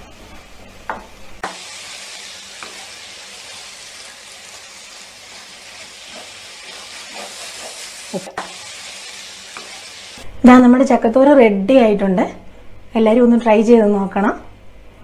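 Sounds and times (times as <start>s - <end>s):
food sizzling in a frying pan: 1.4s - 10.3s.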